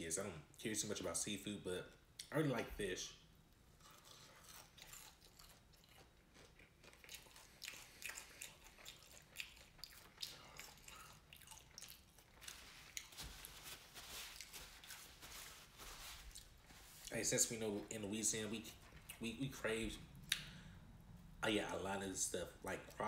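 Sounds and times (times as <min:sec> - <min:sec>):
person chewing crunchy food: 0:03.7 - 0:17.2.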